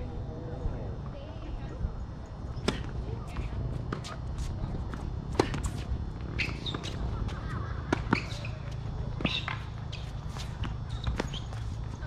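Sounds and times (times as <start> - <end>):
shoe squeaks: 5.4 - 12.0.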